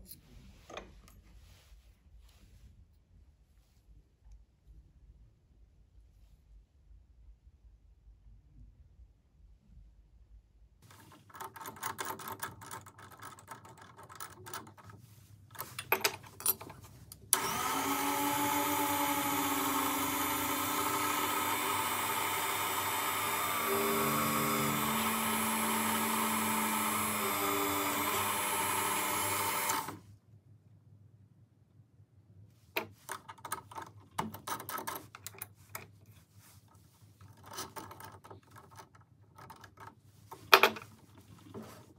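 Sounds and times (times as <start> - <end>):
drill press motor running: 17.3 - 30.0.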